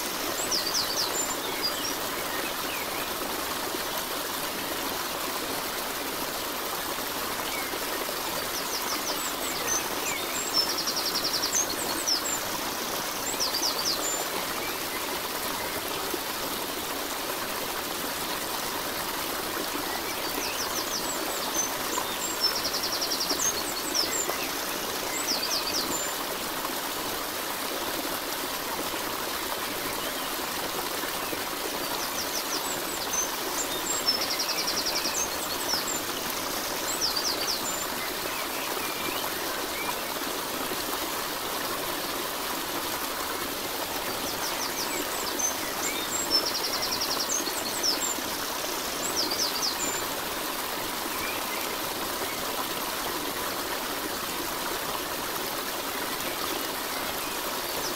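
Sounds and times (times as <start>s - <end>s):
running water: 0.0s - 57.9s.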